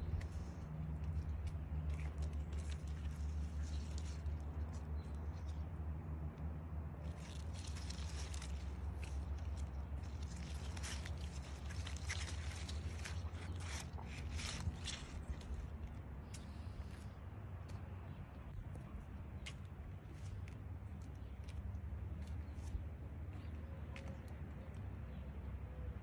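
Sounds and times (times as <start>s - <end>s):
leaves rustling and crackling: 0.0s - 5.6s, 7.0s - 17.0s
steady low rumble: 0.0s - 26.0s.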